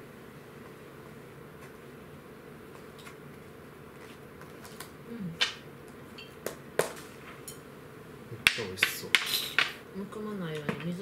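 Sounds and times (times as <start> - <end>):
chopsticks and dishes clinking: 6.1 - 6.4.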